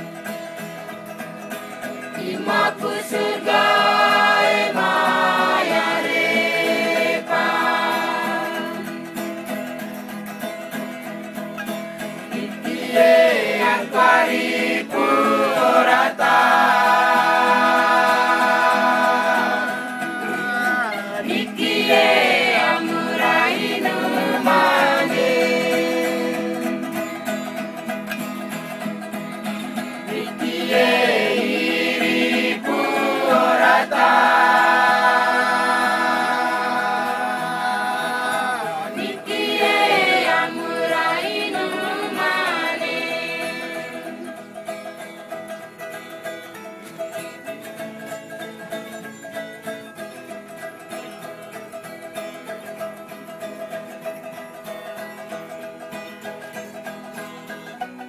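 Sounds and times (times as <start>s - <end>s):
group singing together: 2.1s - 9.5s, 12.2s - 27.4s, 30.0s - 44.7s.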